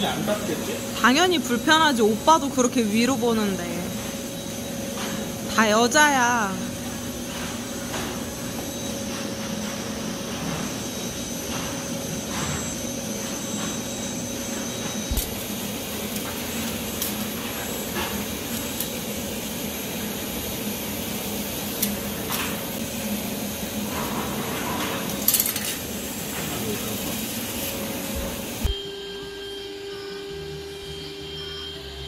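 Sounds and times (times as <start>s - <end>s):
machine hum: 0.0s - 32.0s
faint high whine: 28.6s - 32.0s.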